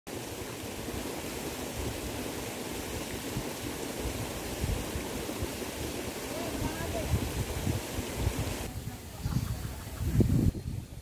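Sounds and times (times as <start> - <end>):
wind buffeting microphone: 3.3 - 11.0.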